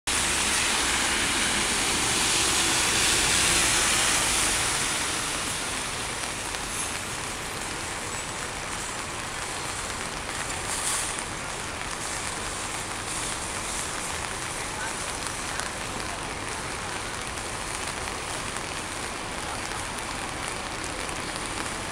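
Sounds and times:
passing vehicle rumble: 0:00.1 - 0:07.0
rain and tyres on wet road: 0:00.1 - 0:21.9.

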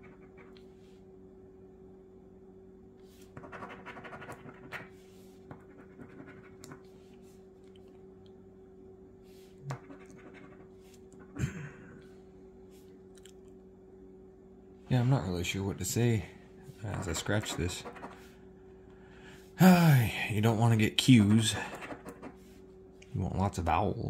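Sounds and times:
coin scratching lottery ticket: 0:00.0 - 0:00.6, 0:03.3 - 0:04.9, 0:05.5 - 0:06.8, 0:09.7 - 0:10.7, 0:16.8 - 0:18.3, 0:21.7 - 0:22.4
steady low hum: 0:00.0 - 0:24.0.

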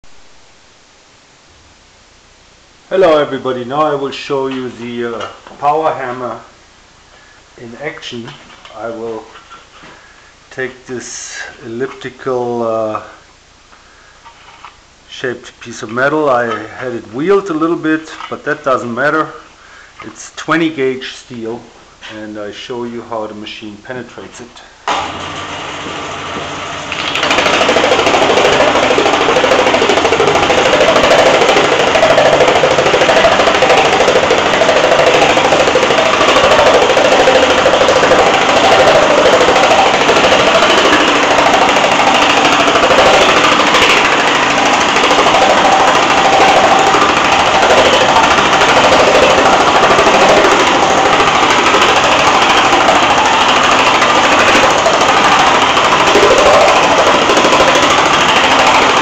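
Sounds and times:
power hammer hammering steel sheet: 0:27.1 - 0:59.0.

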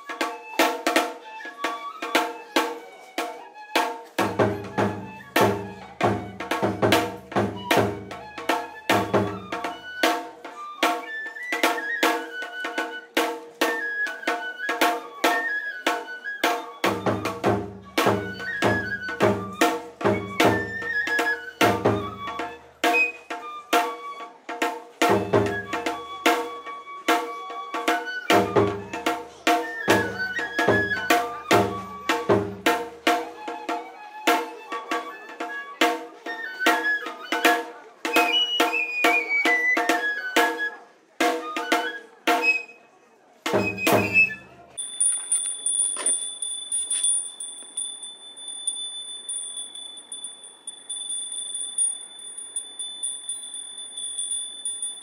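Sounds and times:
bamboo flute melody: 0:00.0 - 0:46.1
deep barrel drum beats: 0:04.2 - 0:09.9, 0:16.8 - 0:22.6, 0:28.3 - 0:33.3.

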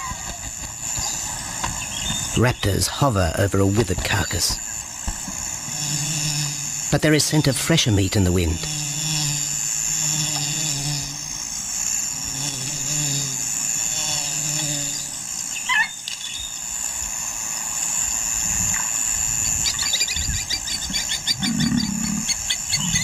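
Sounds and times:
insect drone: 0:00.0 - 0:23.0
quick chattering calls: 0:19.5 - 0:23.0.

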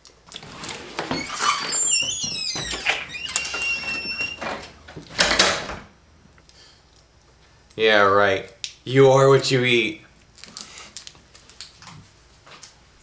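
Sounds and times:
door squeaking: 0:00.5 - 0:05.8.

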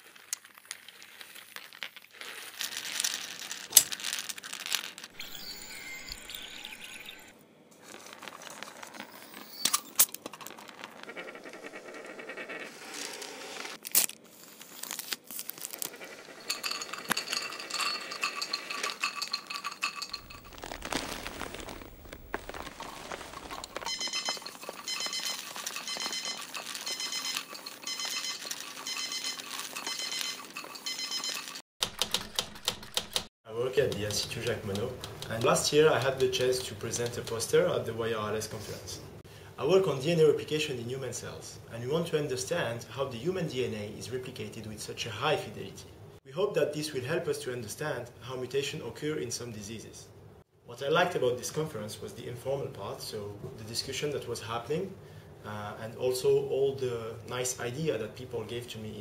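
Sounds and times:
crinkling: 0:00.0 - 0:05.3, 0:07.8 - 0:17.5, 0:18.2 - 0:30.8, 0:33.8 - 0:37.6
digital timer beeping: 0:05.2 - 0:07.3, 0:23.9 - 0:31.5
glass and plastic clinking: 0:16.4 - 0:31.6
sharp clicks: 0:33.9 - 0:37.4.

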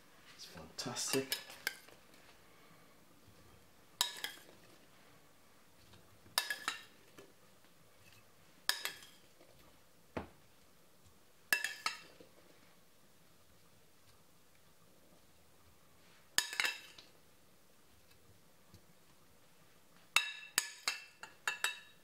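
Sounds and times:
cutlery clinking against plates: 0:00.9 - 0:01.9, 0:04.0 - 0:04.6, 0:06.4 - 0:07.0, 0:08.0 - 0:09.2, 0:11.5 - 0:12.2, 0:16.4 - 0:17.0, 0:20.2 - 0:22.0.

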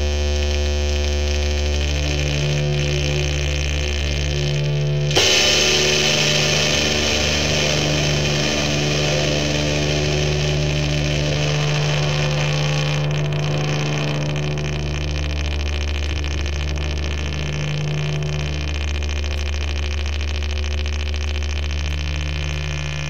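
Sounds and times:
distorted rock noise: 0:00.0 - 0:23.0
low drone: 0:00.0 - 0:23.0.

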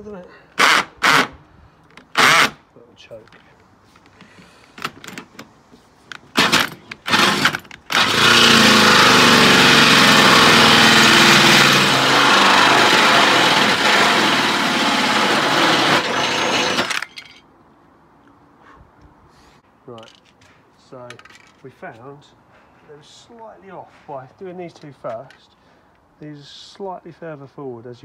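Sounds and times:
cordless drill cutting steel: 0:00.6 - 0:01.3, 0:02.2 - 0:02.6, 0:06.4 - 0:17.1.

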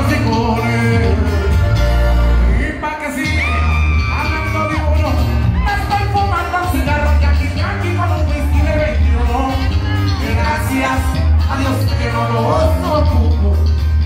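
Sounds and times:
person singing: 0:00.0 - 0:14.0
strong bass: 0:00.0 - 0:14.0
crowd shouting: 0:03.2 - 0:06.2.

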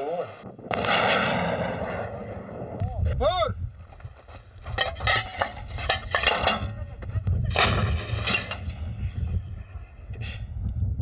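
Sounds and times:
low rumble: 0:00.3 - 0:03.9
artillery gun blasts: 0:00.5 - 0:02.9.

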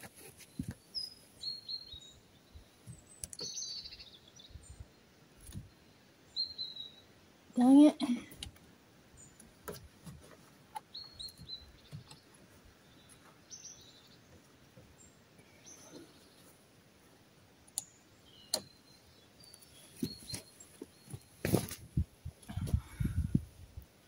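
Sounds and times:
faint bird chirps: 0:00.3 - 0:07.9, 0:10.8 - 0:16.6, 0:17.8 - 0:21.7.

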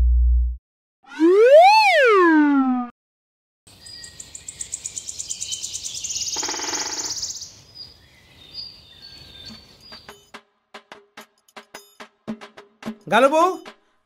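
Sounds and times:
birds chirping and tweeting: 0:03.7 - 0:10.4
insect-like trill: 0:06.3 - 0:07.4.

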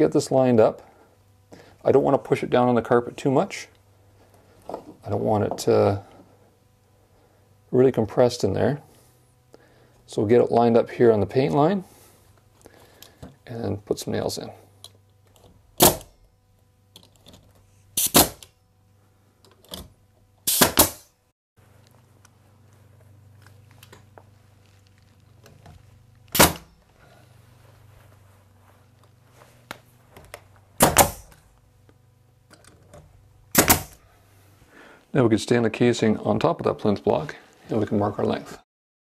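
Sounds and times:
nail gun shots: 0:15.8 - 0:16.2, 0:18.0 - 0:18.5, 0:20.4 - 0:21.1, 0:26.3 - 0:26.7, 0:30.8 - 0:31.4, 0:33.5 - 0:34.0.

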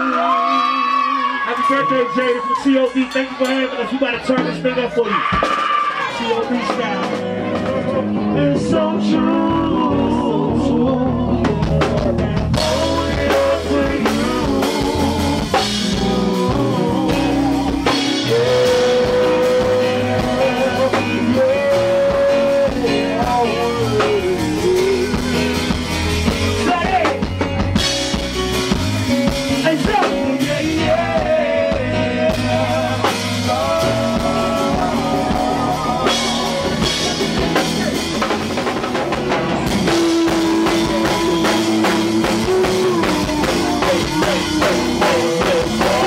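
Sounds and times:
drums and band playing: 0:00.0 - 0:46.0
singer holding long notes: 0:06.4 - 0:25.9, 0:29.7 - 0:38.4, 0:39.4 - 0:46.0.

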